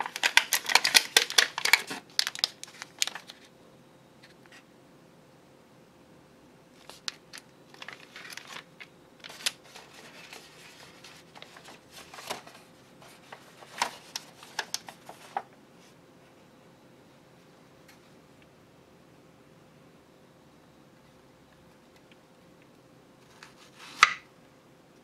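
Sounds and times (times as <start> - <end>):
plastic packaging crinkling: 0.0 - 3.5, 6.8 - 15.5.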